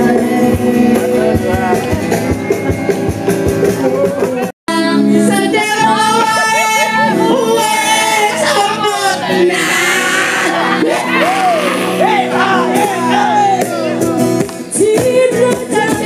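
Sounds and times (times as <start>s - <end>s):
person singing: 0.0s - 2.3s, 3.8s - 14.0s, 14.7s - 16.0s
music with a steady beat: 0.0s - 6.5s.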